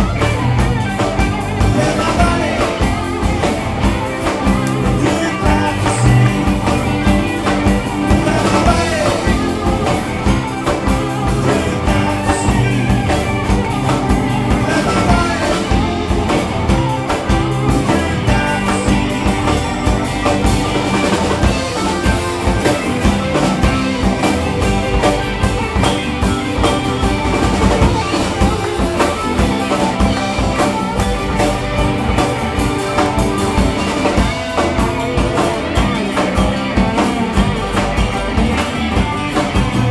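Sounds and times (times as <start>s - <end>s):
live rock band playing: 0.0s - 39.9s.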